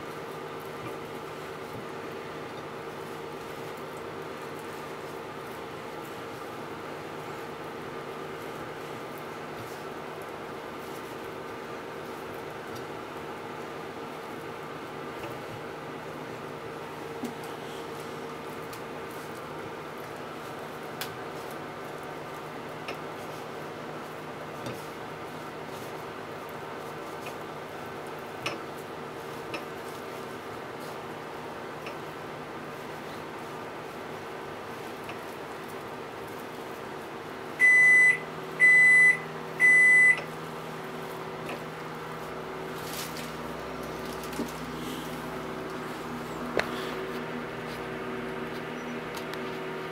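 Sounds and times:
steady hum: 0.0s - 49.9s
high-pitched appliance beeps: 37.6s - 40.3s
low steady hum: 37.6s - 49.9s.

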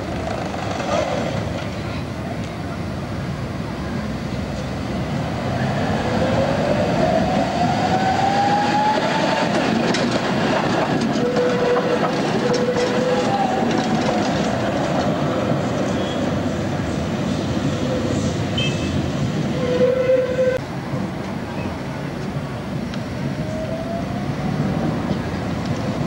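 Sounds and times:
tram motor whine: 5.3s - 20.6s
wheels clicking over rails: 8.8s - 16.1s.

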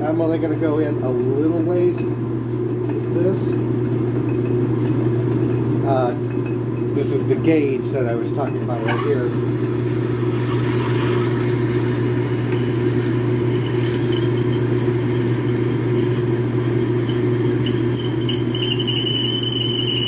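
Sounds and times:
metal lathe humming: 7.1s - 20.0s
thin high whine: 8.5s - 20.0s.

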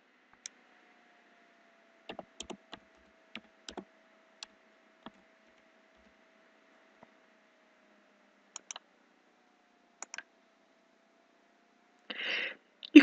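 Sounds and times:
faint steady hum: 0.0s - 13.0s
keyboard keys clicking: 2.1s - 6.1s, 8.6s - 8.8s, 10.0s - 10.2s.

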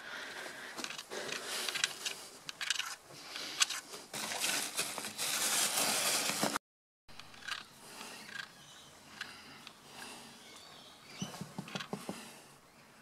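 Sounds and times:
clothing rustling against microphone: 3.8s - 6.6s.

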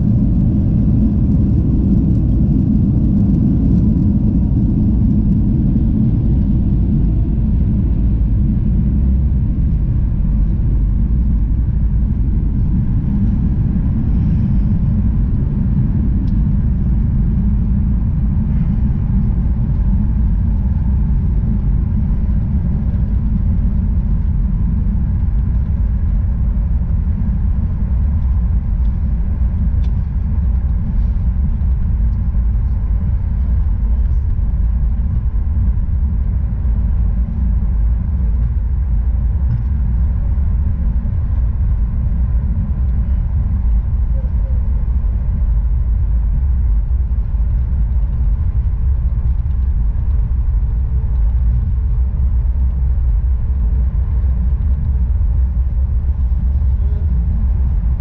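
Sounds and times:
aircraft wheels rolling: 0.0s - 58.0s
jet engines idling rumble: 0.0s - 58.0s.

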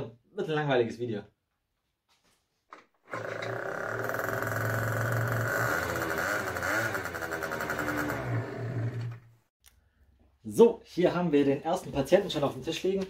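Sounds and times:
scooter engine revving: 3.1s - 9.5s.

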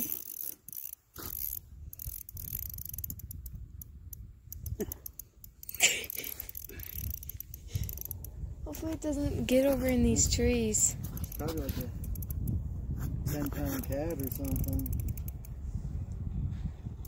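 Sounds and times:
fishing reel clicking: 0.0s - 8.4s, 11.0s - 12.6s, 13.3s - 15.6s.

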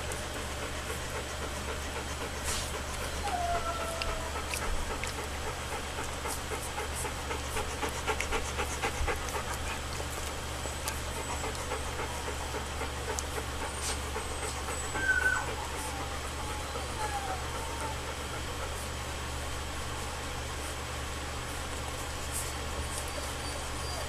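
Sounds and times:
puppies suckling smacking clicks: 0.0s - 16.4s
steady low hum: 0.0s - 24.0s
puppy whimper: 0.1s - 6.5s, 7.8s - 19.0s, 22.4s - 24.0s.

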